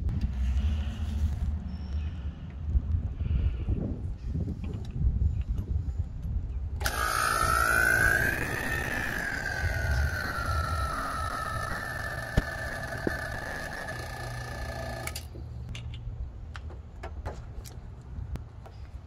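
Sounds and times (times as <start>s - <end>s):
vacuum pump motor whining: 6.8s - 15.4s.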